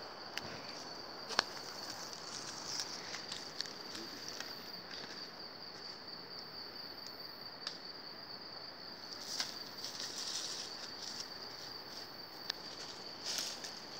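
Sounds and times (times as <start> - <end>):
insects droning: 0.0 - 13.9
rustle in leaf litter: 9.2 - 13.9.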